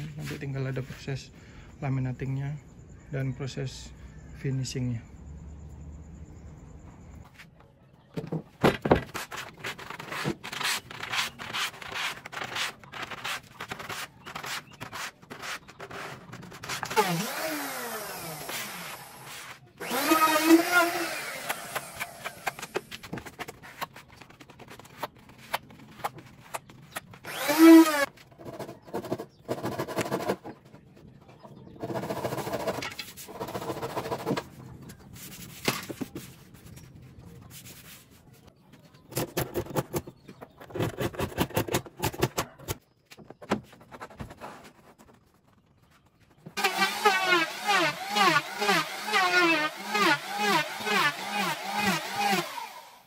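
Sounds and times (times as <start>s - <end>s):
spatula scraping glue: 9.1s - 17.2s
sanding block rubbing: 9.1s - 21.1s.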